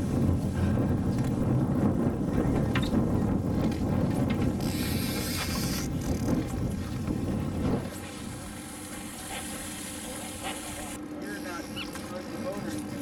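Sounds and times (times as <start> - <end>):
wind buffeting microphone: 0.0 - 8.6
boat engine drone: 0.0 - 13.0
water: 0.0 - 13.0.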